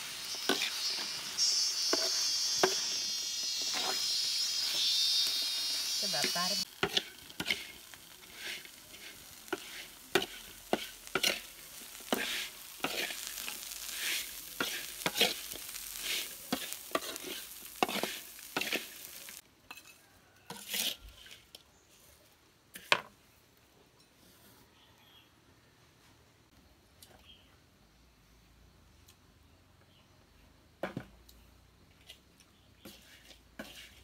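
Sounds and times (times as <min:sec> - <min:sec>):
metal spoon scraping a wok: 0:00.0 - 0:21.4, 0:32.8 - 0:34.0
insects sizzling in a wok: 0:00.0 - 0:21.8, 0:32.0 - 0:34.0.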